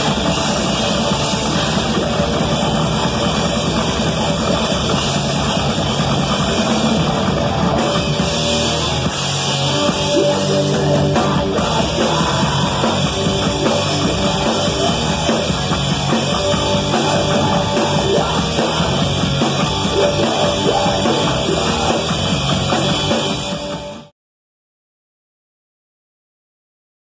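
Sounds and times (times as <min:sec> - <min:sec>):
loud fast punk band: 0:00.0 - 0:24.1.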